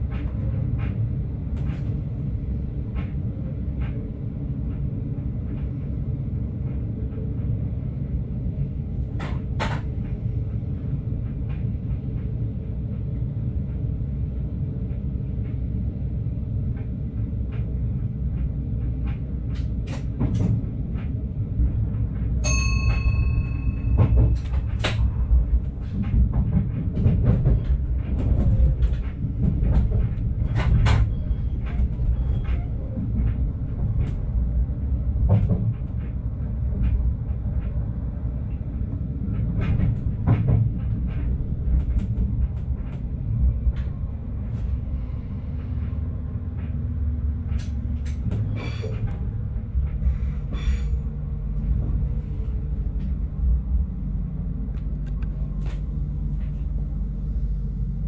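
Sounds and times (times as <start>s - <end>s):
train rumbling on tracks: 0.0s - 58.0s.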